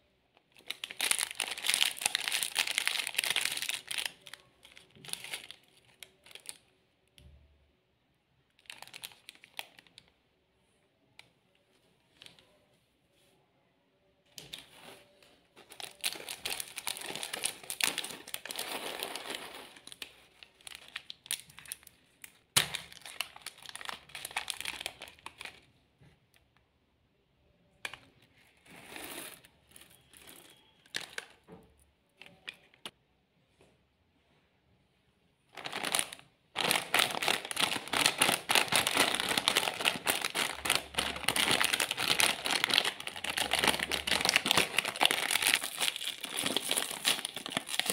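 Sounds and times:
plastic wrappers crinkling: 0.3 - 6.8, 8.5 - 10.1, 14.4 - 25.8, 29.0 - 31.5, 35.5 - 47.9
foil crisp bag crinkling: 0.6 - 6.6, 15.7 - 21.9, 35.5 - 47.9.

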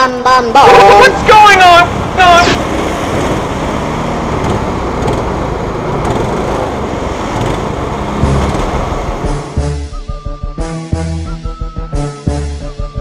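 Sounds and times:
go-kart engines idling: 0.4 - 9.2.

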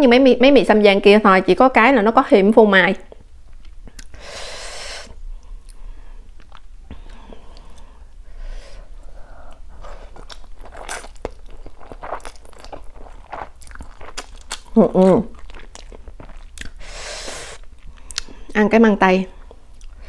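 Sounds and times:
wet chewing: 5.4 - 7.9, 9.4 - 18.5, 19.4 - 20.0.

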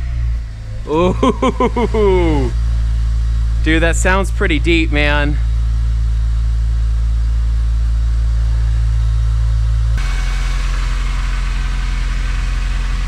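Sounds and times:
car engine idling: 0.0 - 13.0
exhaust hiss: 10.0 - 13.0.

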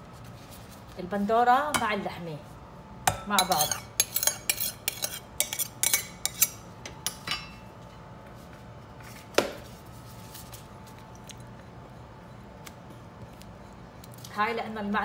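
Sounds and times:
spatula scraping a plate: 3.4 - 6.6.

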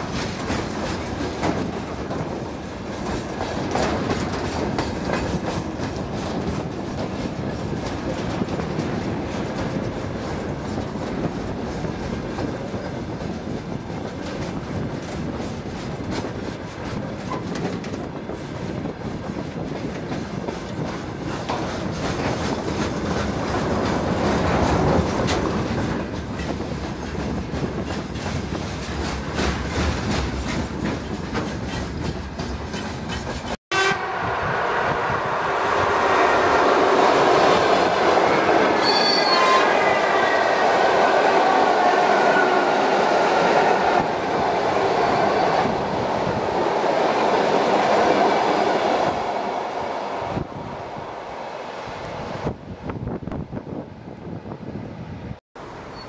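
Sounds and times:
freight train wheels clattering: 0.0 - 33.6.

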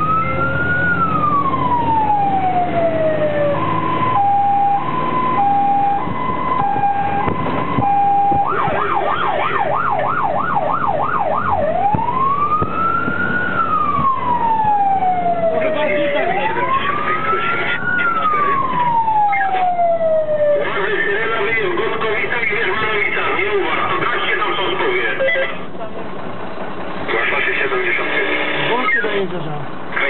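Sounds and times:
fire engine siren: 0.0 - 25.6
diesel engine running: 0.0 - 30.0.

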